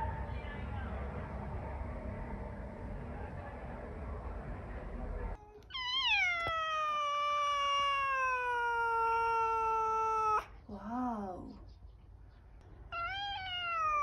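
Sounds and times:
steady low noise: 0:00.0 - 0:05.4
cat meowing: 0:05.6 - 0:10.5, 0:12.9 - 0:14.0.

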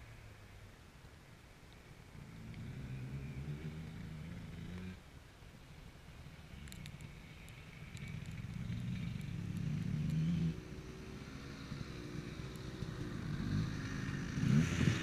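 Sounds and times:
faint motorbike engine running: 0:06.1 - 0:15.0
light ticks: 0:06.5 - 0:10.4, 0:11.7 - 0:13.1.

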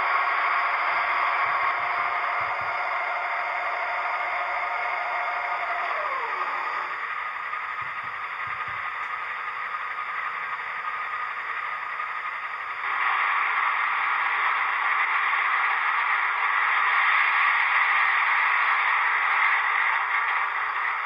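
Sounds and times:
diesel engine idling through small speaker: 0:00.1 - 0:21.0.

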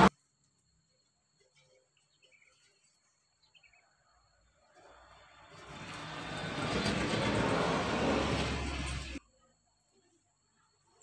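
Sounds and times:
faint bird chirps: 0:00.2 - 0:04.8.

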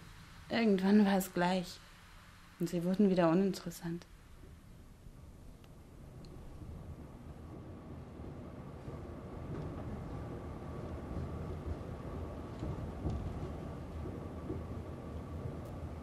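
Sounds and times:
thin steady whine: 0:00.0 - 0:16.0
tram rumble: 0:04.4 - 0:16.0.

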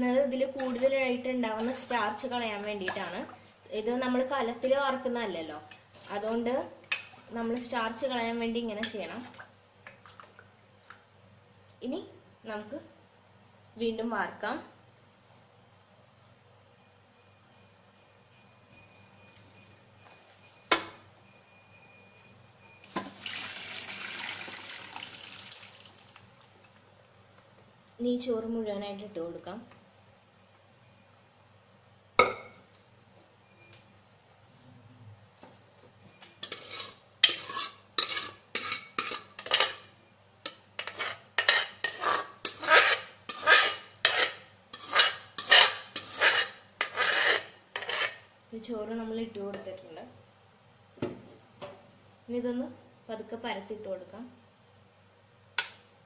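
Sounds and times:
water pouring into colander: 0:23.0 - 0:26.6
metal ladle scraping metal pot: 0:36.4 - 0:39.8, 0:40.8 - 0:48.2.

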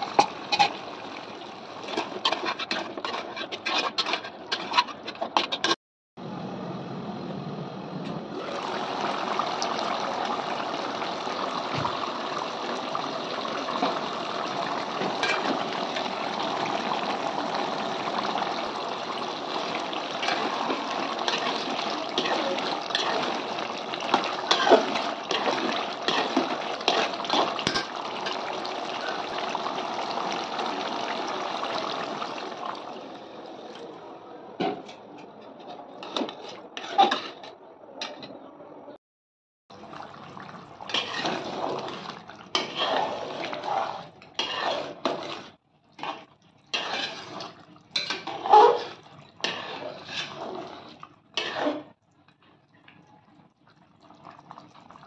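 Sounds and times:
water pouring into a pot: 0:00.0 - 0:04.1, 0:08.3 - 0:33.9, 0:39.7 - 0:55.0
metal ladle scraping a pot: 0:00.5 - 0:00.8, 0:01.8 - 0:05.8, 0:13.8 - 0:29.3, 0:35.6 - 0:37.6, 0:40.9 - 0:41.6, 0:42.5 - 0:52.0.

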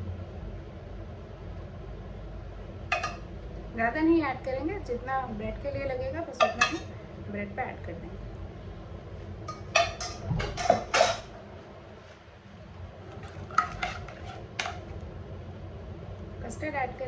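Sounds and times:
ladle and dishes clinking: 0:02.9 - 0:03.2, 0:06.4 - 0:06.9, 0:09.5 - 0:11.3.

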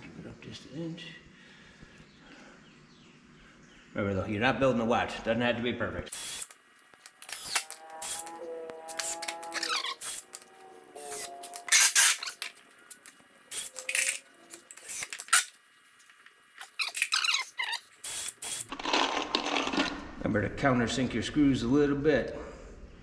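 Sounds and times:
cordless drill whirring: 0:06.2 - 0:08.3, 0:08.9 - 0:12.4, 0:13.5 - 0:15.5
screws and tools clicking and rattling: 0:06.2 - 0:08.3, 0:08.9 - 0:10.5, 0:11.1 - 0:19.9.

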